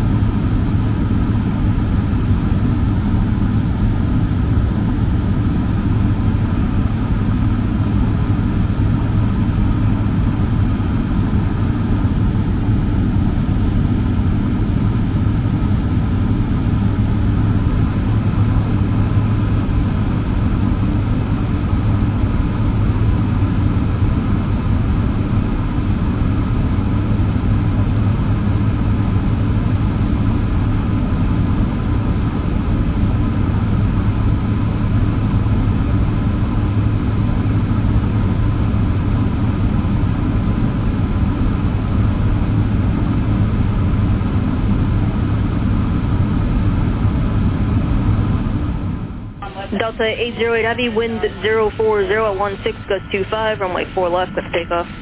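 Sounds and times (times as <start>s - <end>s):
jet engines idling: 41.7s - 55.0s.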